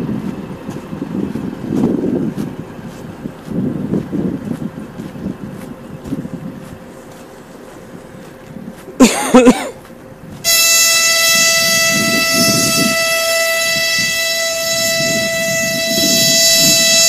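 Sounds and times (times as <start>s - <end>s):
locomotive horn blasts: 10.4s - 17.0s.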